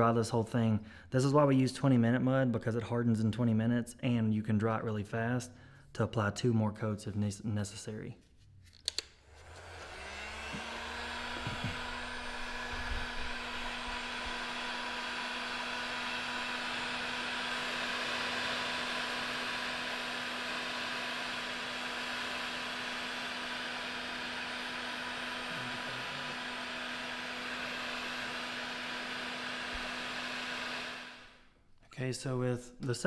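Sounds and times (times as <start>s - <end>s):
heat gun fan blowing: 9.2s - 31.5s.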